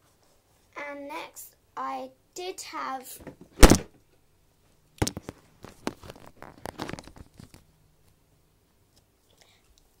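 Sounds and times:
rustling and crinkling handling noise: 0:05.0 - 0:08.2.

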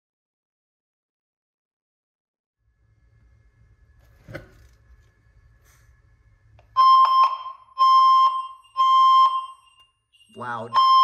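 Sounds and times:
fire alarm beeping: 0:06.7 - 0:11.0.

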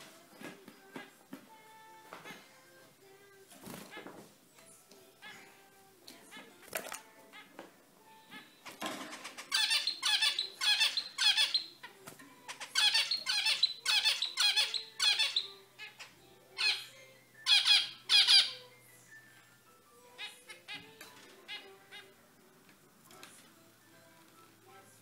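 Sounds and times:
finch squeaky calls: 0:09.1 - 0:11.8, 0:12.5 - 0:18.7.

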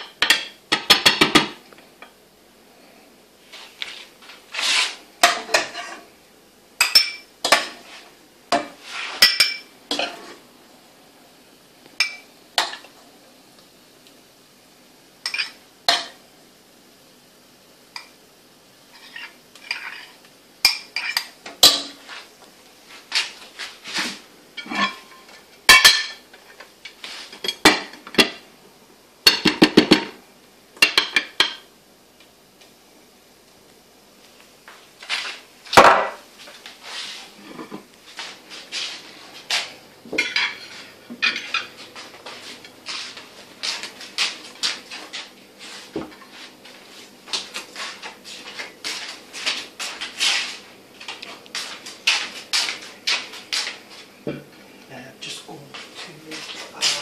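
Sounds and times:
utensils clinking on metal saucepan: 0:15.2 - 0:16.2, 0:19.0 - 0:22.0, 0:24.6 - 0:26.2.

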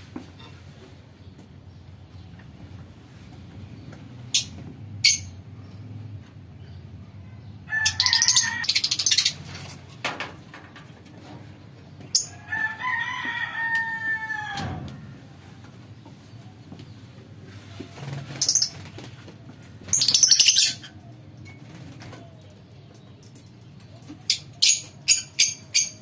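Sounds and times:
rooster crowing: 0:07.6 - 0:09.0, 0:12.4 - 0:15.2.

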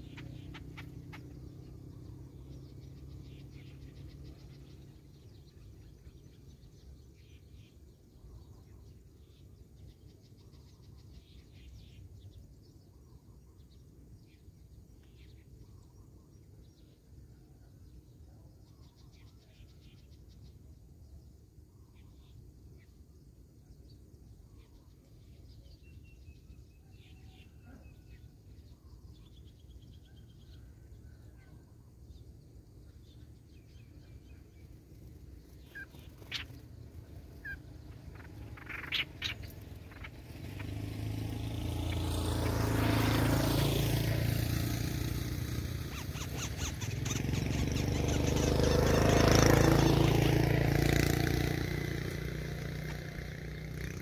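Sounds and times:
motor vehicle passing: 0:00.0 - 0:12.3, 0:25.8 - 0:54.0
small birds chirping: 0:00.0 - 0:54.0.

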